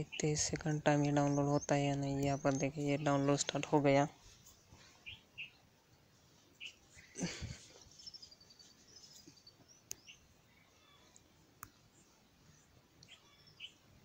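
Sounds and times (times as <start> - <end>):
faint high chirps: 6.5 - 14.0.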